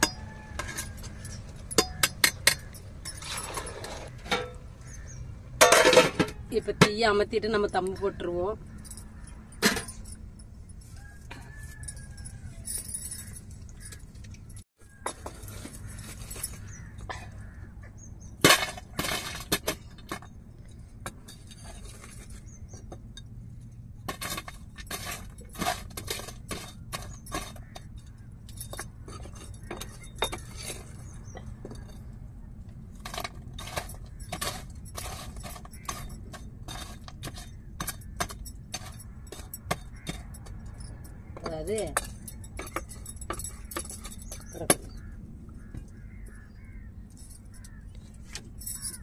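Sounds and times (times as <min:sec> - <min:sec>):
metal ladle scraping and clinking: 0:00.0 - 0:06.6, 0:32.8 - 0:45.1
charcoal clattering onto metal lid: 0:05.6 - 0:07.1, 0:18.4 - 0:20.2.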